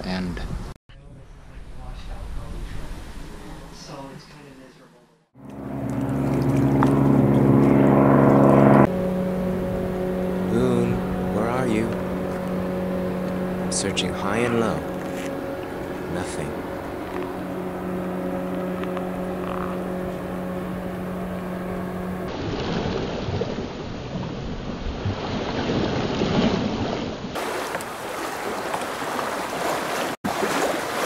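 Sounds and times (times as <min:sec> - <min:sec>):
low hum: 0:00.9 - 0:24.9
lake water lapping: 0:05.4 - 0:31.0.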